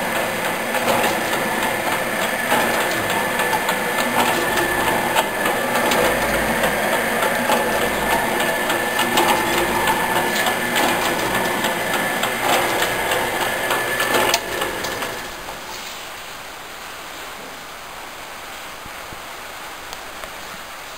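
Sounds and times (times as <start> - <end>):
motor whine: 0.0 - 15.8
machine gear clatter: 0.0 - 15.9.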